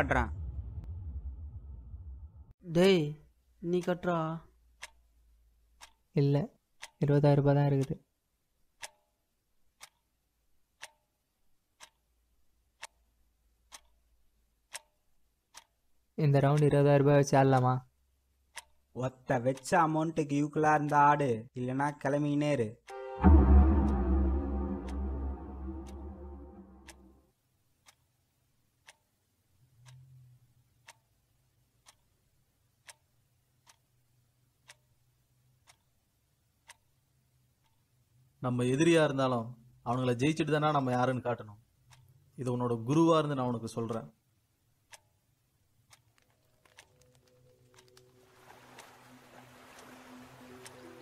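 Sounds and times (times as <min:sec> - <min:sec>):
low hum: 0:00.0 - 0:02.6, 0:22.9 - 0:27.1
clock ticking: 0:03.6 - 0:27.0, 0:27.8 - 0:48.2, 0:49.6 - 0:51.0.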